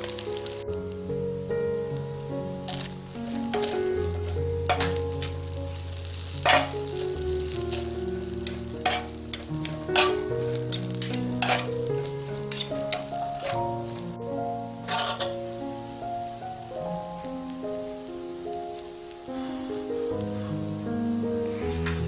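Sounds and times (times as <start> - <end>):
food sizzling on a griddle: 0.0 - 1.0, 1.9 - 22.0
soft background music: 0.0 - 22.0
metal spoons scraping iron: 6.4 - 6.7, 8.4 - 9.4, 10.0 - 11.8, 12.5 - 13.6, 14.9 - 15.4.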